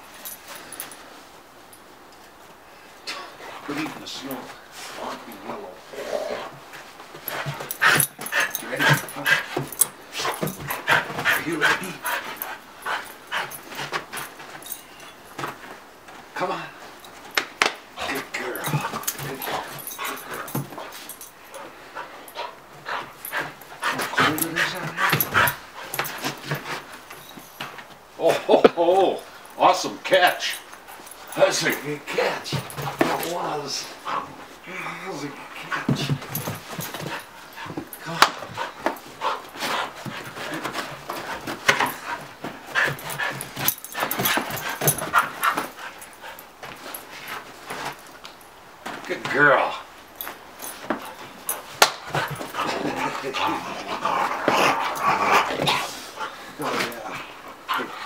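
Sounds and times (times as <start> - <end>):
dog making excited vocal sounds: 22.4 - 26.7.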